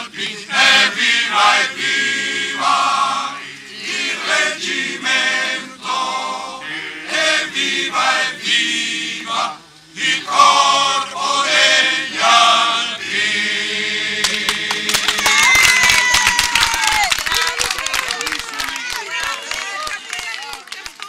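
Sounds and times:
choir singing a cappella: 0.0 - 15.2.

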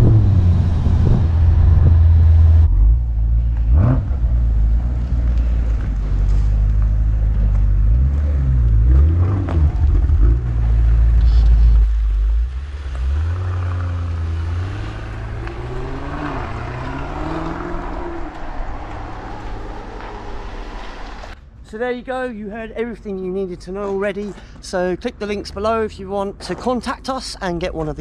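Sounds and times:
car engine revving: 0.0 - 21.4.

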